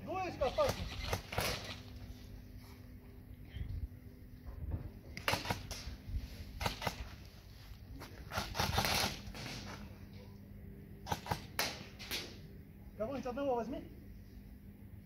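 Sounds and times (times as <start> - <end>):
airsoft gunshots: 0.5 - 1.8, 5.2 - 5.9, 6.6 - 7.2, 8.3 - 9.8, 11.0 - 12.4.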